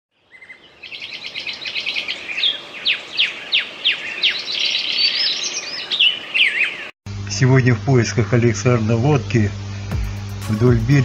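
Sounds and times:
songbirds singing: 0:00.1 - 0:07.0.

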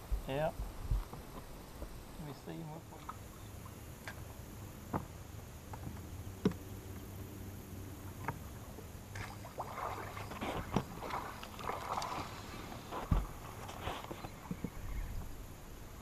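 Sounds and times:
light knocks on boat: 0:04.9 - 0:05.1, 0:05.7 - 0:06.6, 0:10.4 - 0:11.2, 0:12.9 - 0:13.4.

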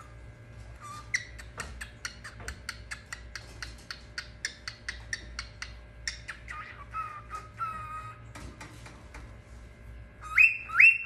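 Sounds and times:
cockatiel chirping: 0:10.2 - 0:11.0
cockatiel whistle: 0:10.2 - 0:11.0.

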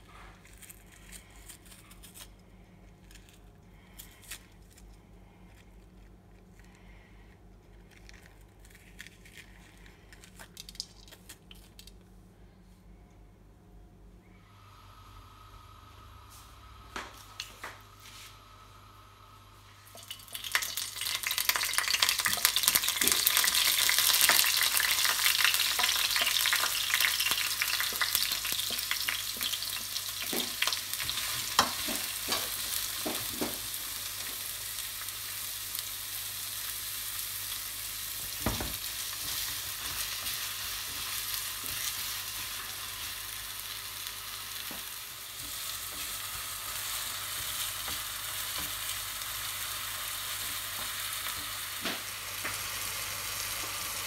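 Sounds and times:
onions sizzling in hot oil: 0:19.8 - 0:54.0.

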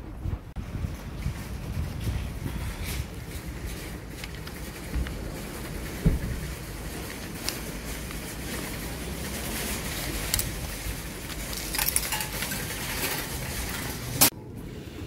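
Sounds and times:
shopping cart metal clinks: 0:03.4 - 0:14.3.

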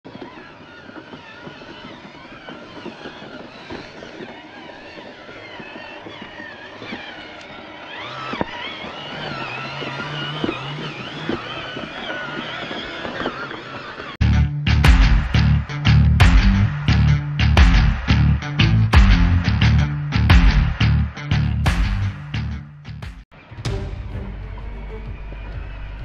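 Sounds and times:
electric motors whining: 0:00.1 - 0:14.2
low hum: 0:14.2 - 0:26.0.

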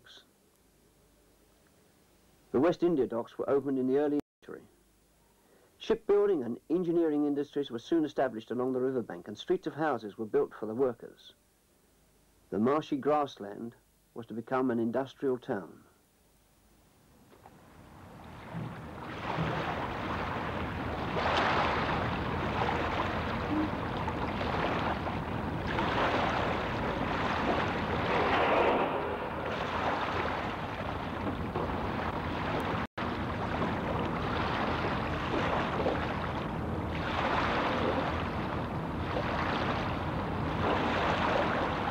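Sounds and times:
waves washing: 0:17.9 - 0:41.9.

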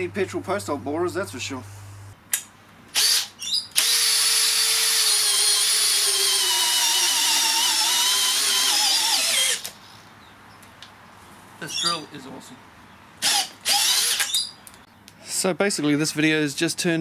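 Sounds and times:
cordless drill whining: 0:03.0 - 0:09.8, 0:13.2 - 0:14.5.

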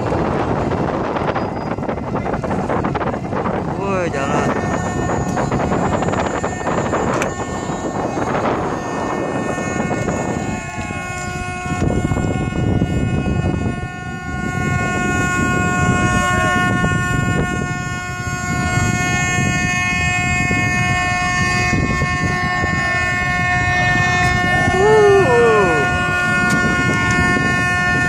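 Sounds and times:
horn long blast: 0:00.0 - 0:28.0
wind rumble: 0:00.0 - 0:28.0
crowd murmur: 0:24.2 - 0:26.7.

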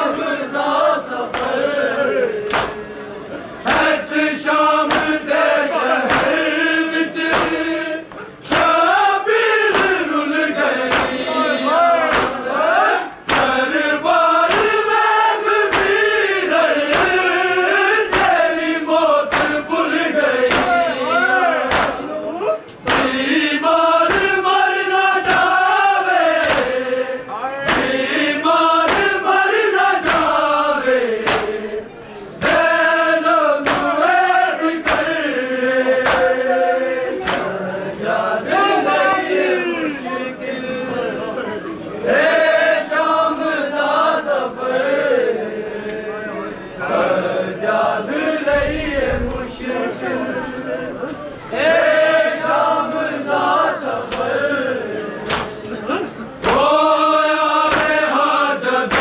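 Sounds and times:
rhythmic chest-beating slaps: 0:00.0 - 0:03.0, 0:03.6 - 0:38.7, 0:51.6 - 0:59.0
men chanting a lament: 0:00.0 - 0:59.0.

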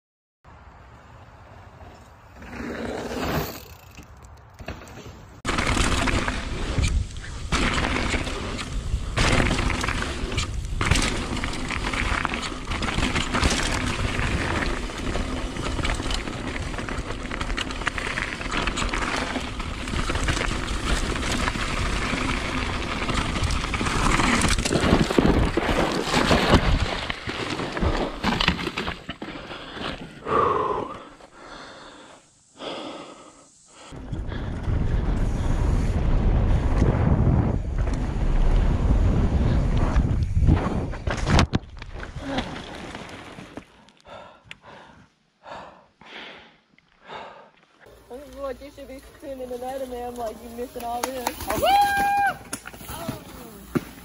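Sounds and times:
tyres on gravel: 0:02.1 - 0:30.4, 0:37.7 - 0:43.8, 0:47.8 - 0:54.0
bike rattling over bumps: 0:02.3 - 0:30.2, 0:48.0 - 0:54.0
wind rushing over microphone: 0:34.0 - 0:42.2.

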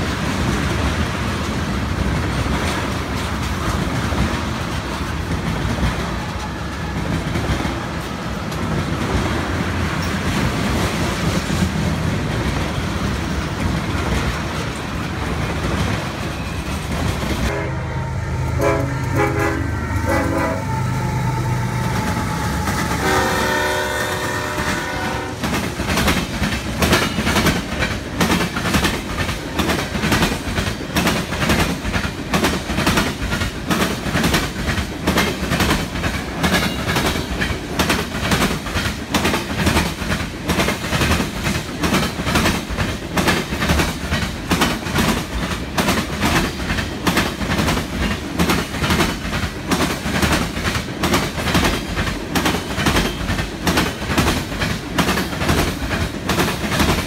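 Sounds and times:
rumble of moving train: 0:00.0 - 0:57.0
train horn: 0:17.5 - 0:25.5
wheels clacking over rail joints: 0:21.8 - 0:57.0.

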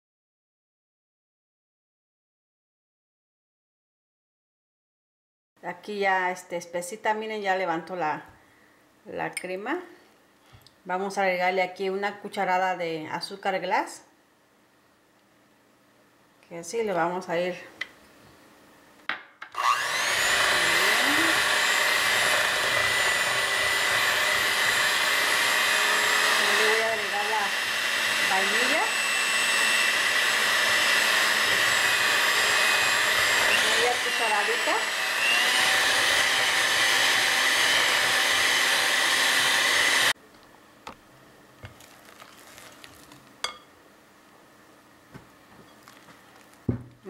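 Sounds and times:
electric hand mixer whining: 0:19.6 - 0:40.2.

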